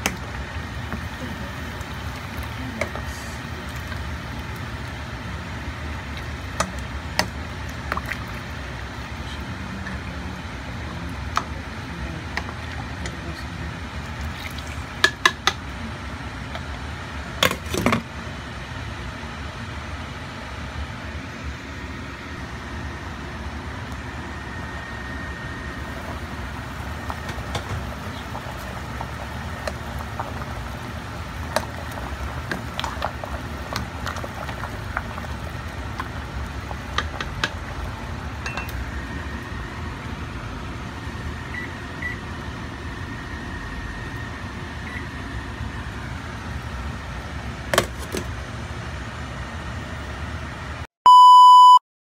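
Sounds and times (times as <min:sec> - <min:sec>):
pot of soup boiling: 0:00.0 - 0:18.0, 0:22.5 - 0:50.2
electronic beep: 0:51.1 - 0:51.8.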